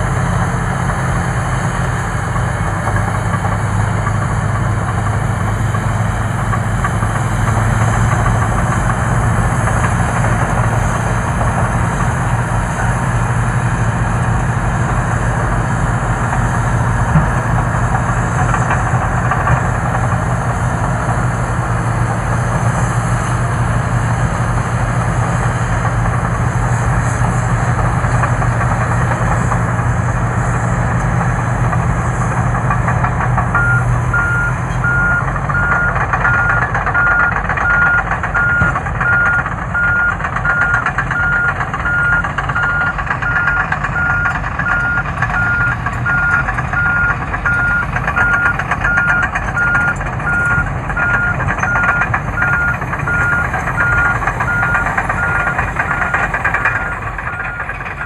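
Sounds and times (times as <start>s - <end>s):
heavy diesel engines running: 0.0s - 58.0s
reversing alarm beeping: 33.5s - 58.0s.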